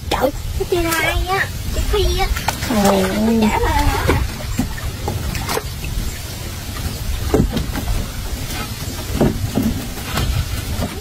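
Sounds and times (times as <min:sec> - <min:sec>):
steady low rumble: 0:00.0 - 0:11.0
fish trap knocks and rustles: 0:07.2 - 0:11.0.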